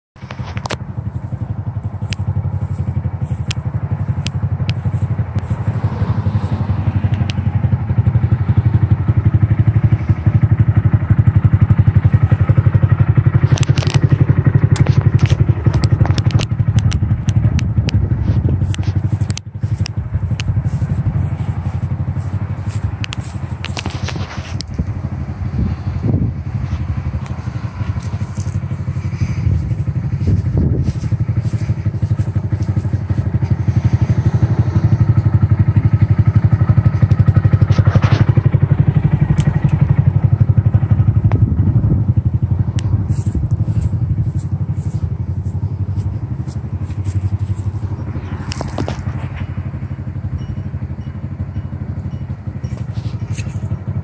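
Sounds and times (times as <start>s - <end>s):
small motorcycle engine idling: 0.2s - 54.0s
sharp clicks: 13.3s - 20.7s.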